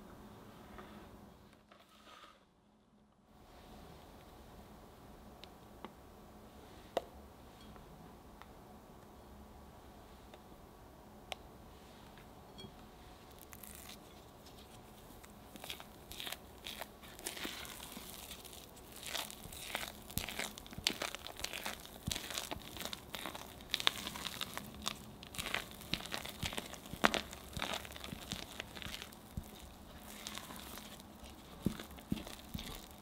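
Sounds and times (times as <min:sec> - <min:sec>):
spatula scraping batter in glass bowl: 0:15.6 - 0:33.0.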